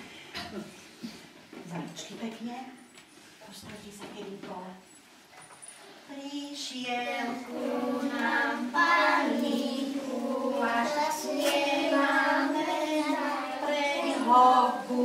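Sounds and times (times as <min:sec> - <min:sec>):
children singing together: 0:06.8 - 0:15.0.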